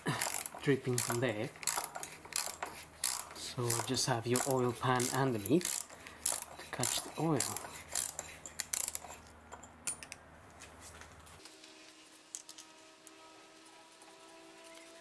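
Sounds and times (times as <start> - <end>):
ratchet clicking: 0.2 - 9.7.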